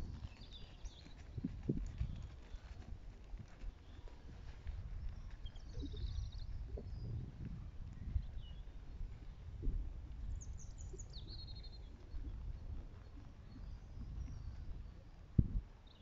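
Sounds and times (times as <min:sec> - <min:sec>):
small bird chirping: 0:00.0 - 0:02.8, 0:05.0 - 0:07.2, 0:10.3 - 0:15.0.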